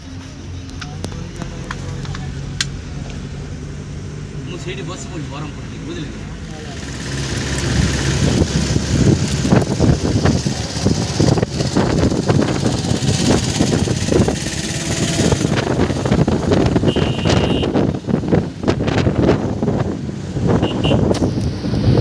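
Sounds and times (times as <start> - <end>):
bus engine and road rumble: 0.0 - 22.0
gusty wind noise: 6.9 - 22.0.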